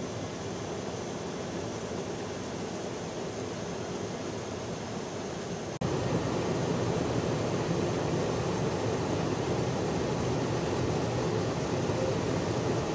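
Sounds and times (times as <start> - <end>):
aircraft cabin engine noise: 0.0 - 12.9.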